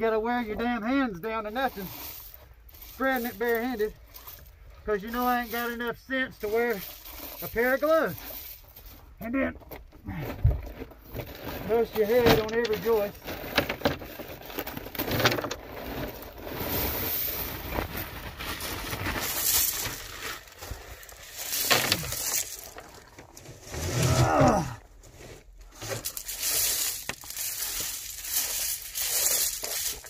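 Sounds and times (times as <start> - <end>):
gravel scraping and clattering: 0.0 - 30.0
plastic bag crinkling: 11.0 - 23.8, 25.6 - 30.0
person grunting: 23.9 - 24.9.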